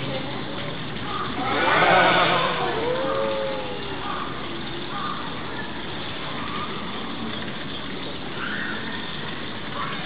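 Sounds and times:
outdoor background noise: 0:00.0 - 0:10.0
faint distant calls: 0:01.0 - 0:05.7.

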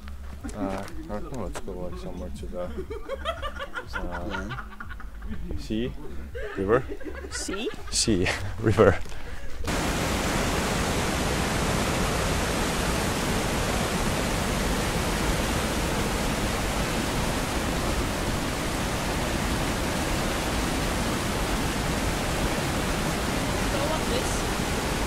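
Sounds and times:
waterfall rushing: 0:09.7 - 0:25.0.

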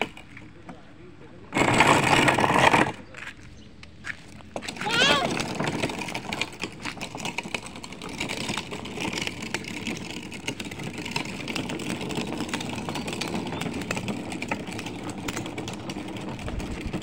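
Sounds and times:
plastic wheels rolling on concrete: 0:00.0 - 0:17.0.

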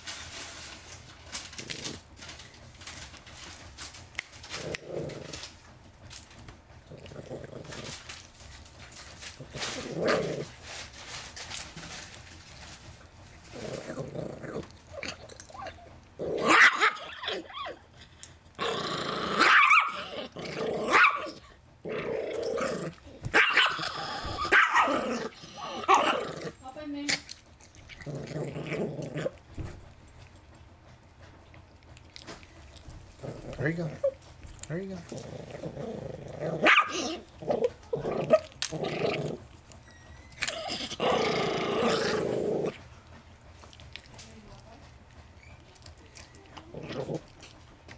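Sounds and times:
dog chewing: 0:00.2 - 0:47.9
dog growling and snarling: 0:01.2 - 0:30.5, 0:31.4 - 0:44.1, 0:45.8 - 0:47.9
dog barking: 0:16.5 - 0:17.0, 0:19.4 - 0:20.0, 0:20.9 - 0:21.3, 0:23.3 - 0:23.8, 0:24.5 - 0:24.9, 0:36.6 - 0:37.0.

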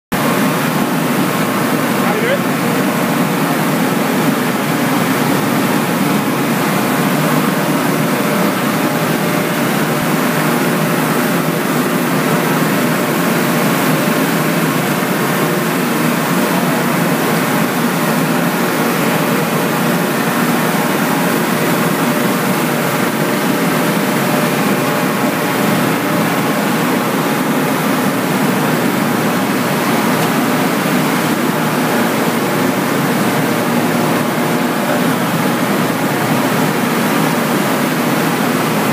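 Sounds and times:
industrial machinery drone: 0:00.2 - 0:38.9.

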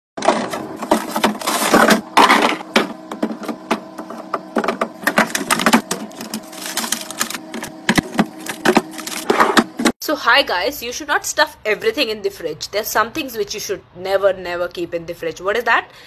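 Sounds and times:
packaging rustling: 0:00.2 - 0:04.0, 0:04.9 - 0:09.9.

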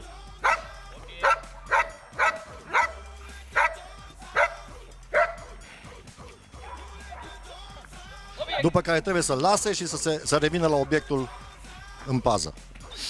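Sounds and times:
dog barking: 0:00.4 - 0:05.6, 0:06.6 - 0:07.4.

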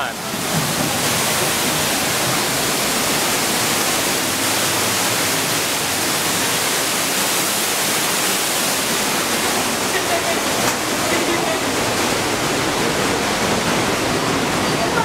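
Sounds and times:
waterfall splashing into water: 0:00.0 - 0:15.0.

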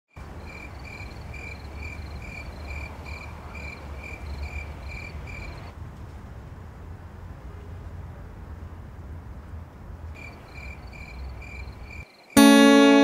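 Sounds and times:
cricket chirping: 0:00.2 - 0:05.7, 0:10.2 - 0:12.6.

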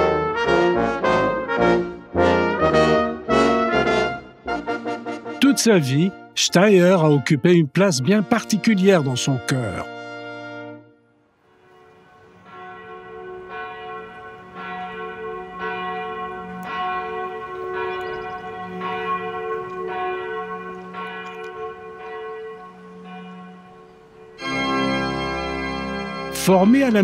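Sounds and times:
sustained musical chord: 0:00.0 - 0:27.0
church bell tolling: 0:05.4 - 0:27.0.

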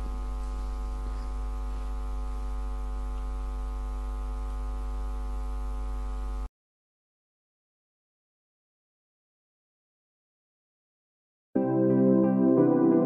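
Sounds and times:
electrical mains hum: 0:00.0 - 0:06.5.

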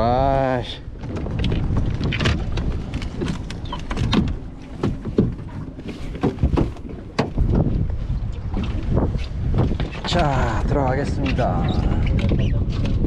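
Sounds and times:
wind rumbling on microphone: 0:00.0 - 0:13.0
fishing gear knocking and clattering: 0:01.0 - 0:07.7.

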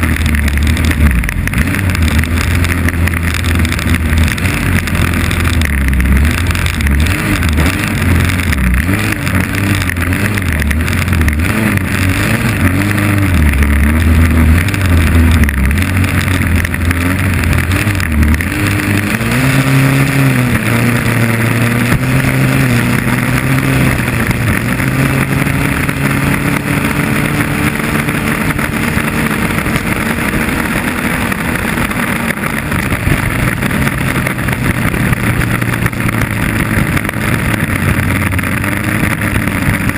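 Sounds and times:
boat engine racing: 0:00.0 - 0:39.9.

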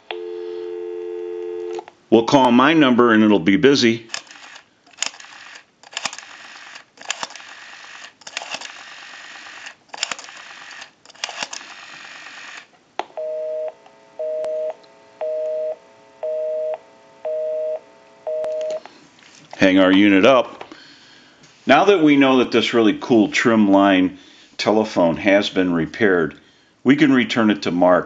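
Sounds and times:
telephone busy signal beeps: 0:00.1 - 0:01.8, 0:13.2 - 0:18.8
rotary telephone dial turning: 0:04.1 - 0:12.7.

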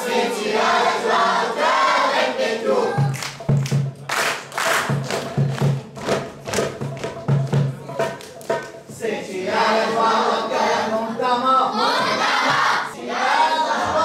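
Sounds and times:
children singing together: 0:00.0 - 0:03.2, 0:08.9 - 0:14.0
children clapping in rhythm: 0:03.0 - 0:08.9.

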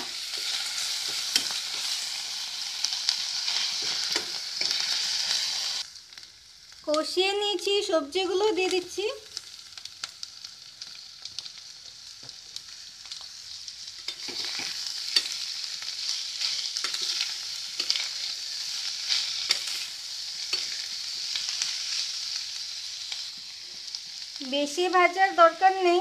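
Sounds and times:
vegetables sizzling in oil: 0:00.0 - 0:26.0
spatula scraping a wok: 0:03.1 - 0:05.8, 0:14.1 - 0:22.3.

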